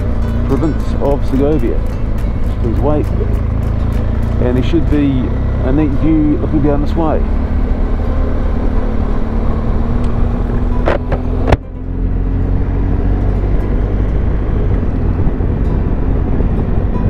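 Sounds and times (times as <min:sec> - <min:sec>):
motorcycle engine running: 0:00.0 - 0:17.0
wind rush on microphone: 0:12.4 - 0:17.0.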